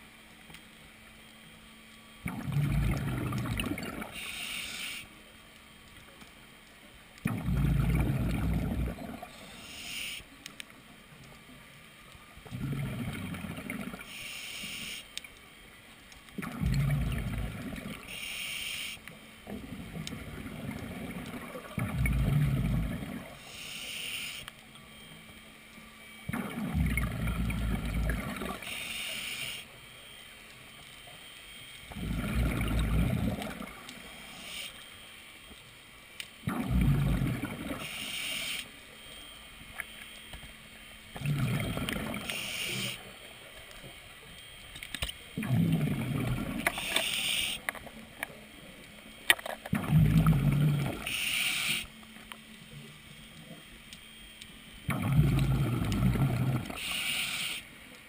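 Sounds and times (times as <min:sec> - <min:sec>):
exhaled bubbles rumbling: 0:02.2 - 0:04.2, 0:07.2 - 0:09.4, 0:12.5 - 0:14.0, 0:16.4 - 0:18.1, 0:19.4 - 0:23.4, 0:26.3 - 0:28.6, 0:31.9 - 0:33.9, 0:36.4 - 0:37.8, 0:41.1 - 0:42.3, 0:45.4 - 0:46.7, 0:49.7 - 0:51.1, 0:54.8 - 0:56.8
underwater regulator breathing: 0:46.5 - 0:47.8, 0:50.0 - 0:52.0, 0:55.3 - 0:57.7.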